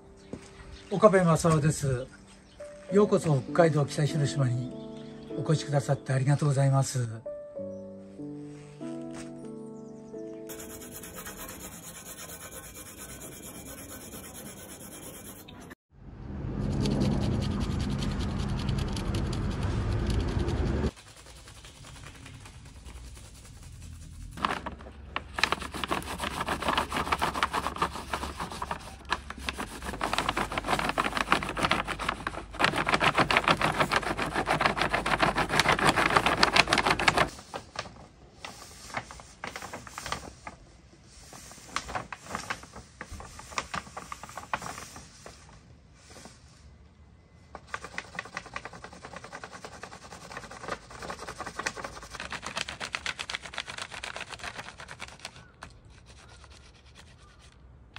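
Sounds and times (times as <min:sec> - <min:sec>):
paper sheet rustling: 0:08.4 - 0:09.6, 0:10.5 - 0:15.5, 0:20.9 - 0:46.4, 0:47.5 - 0:57.6
pencil scratching on paper: 0:10.5 - 0:15.8, 0:17.0 - 0:24.4, 0:25.4 - 0:37.3, 0:47.6 - 0:57.6.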